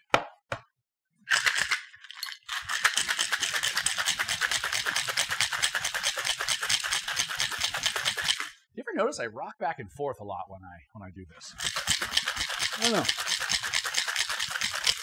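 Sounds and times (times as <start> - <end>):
ice rattling in cocktail shaker: 1.3 - 8.6, 11.5 - 15.0.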